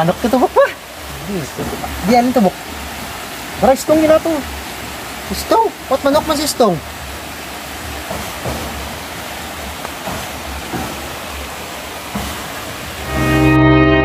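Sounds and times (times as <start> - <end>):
water rushing at a small dam: 0.0 - 13.6
faint short knocks: 8.0 - 8.9
music with long held notes: 13.0 - 14.0.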